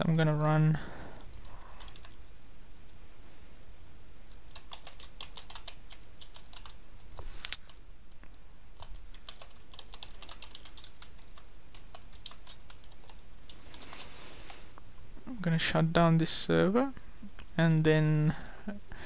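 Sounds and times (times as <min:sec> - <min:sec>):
computer keyboard keys clicking: 0:01.2 - 0:02.2, 0:04.4 - 0:07.8, 0:08.8 - 0:14.0.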